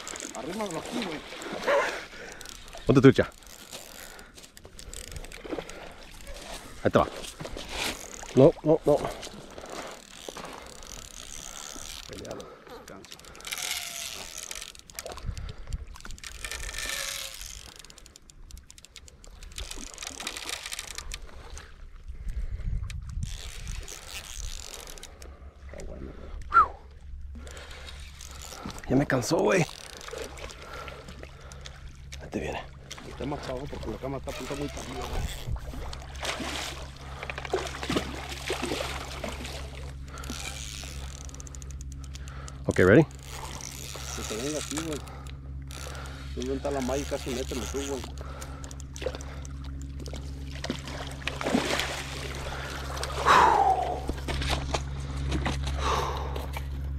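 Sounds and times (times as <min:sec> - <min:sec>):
fishing reel clicking: 0:00.0 - 0:01.1, 0:02.0 - 0:06.5, 0:09.9 - 0:21.6, 0:22.8 - 0:25.3, 0:27.4 - 0:30.6, 0:33.3 - 0:36.2, 0:38.0 - 0:50.3
wind rumble on microphone: 0:22.0 - 0:24.6, 0:34.9 - 0:36.0
fish splashing in water: 0:32.8 - 0:44.1, 0:48.1 - 0:55.6.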